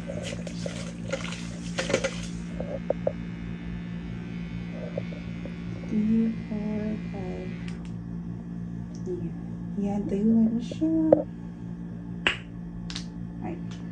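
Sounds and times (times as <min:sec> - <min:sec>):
small motor whirring: 0:01.4 - 0:07.9.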